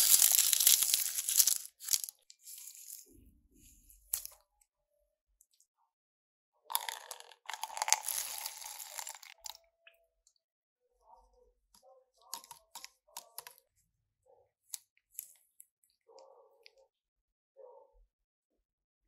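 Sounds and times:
liquid pouring into plastic cup: 6.7 - 9.6.

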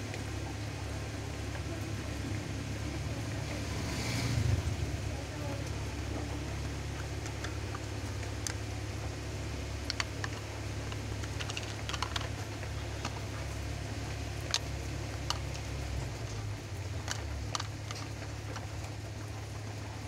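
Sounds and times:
steady low hum: 0.0 - 20.0
fidget spinners clicking on glass: 9.8 - 13.2.

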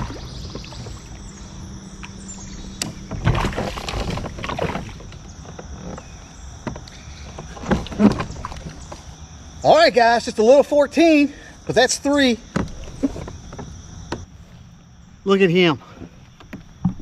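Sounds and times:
fish splashing in water: 0.0 - 5.2
gear knocking on kayak hull: 16.4 - 17.0.

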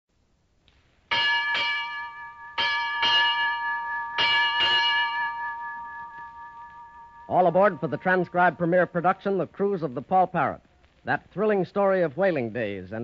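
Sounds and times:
ship's bell ringing: 1.1 - 9.4.

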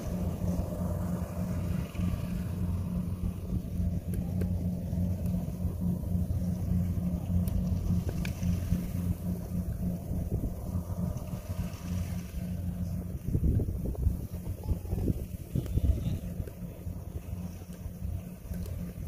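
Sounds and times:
combine harvester engine running: 0.0 - 19.0.

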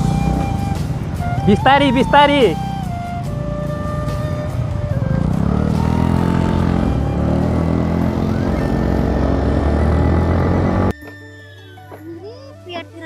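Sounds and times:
motor scooter engine running: 0.0 - 1.5, 3.2 - 10.9
road noise: 0.0 - 10.9
wind: 0.0 - 11.0.

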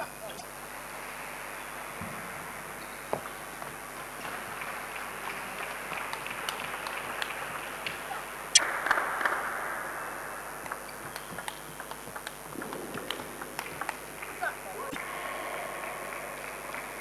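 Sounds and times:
crowd applause: 3.1 - 17.0
crowd murmur: 10.5 - 17.0.

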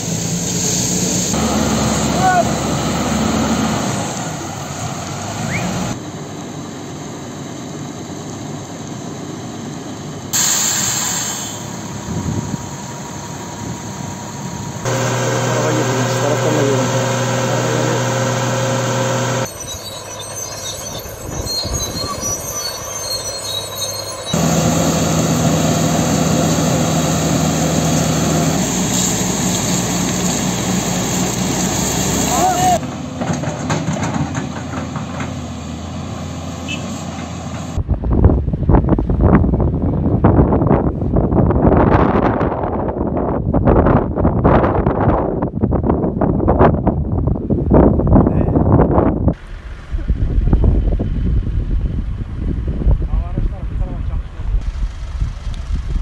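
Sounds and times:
fire truck engines running: 0.0 - 42.1
water jets rushing: 14.8 - 19.5
water jets spraying: 14.8 - 19.5, 24.4 - 32.8.

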